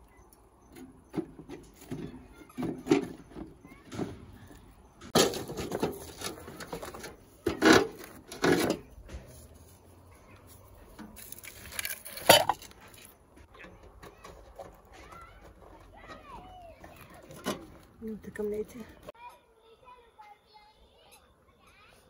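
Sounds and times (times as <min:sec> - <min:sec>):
firewood clattering in metal stove: 0:00.7 - 0:09.6, 0:10.8 - 0:18.7.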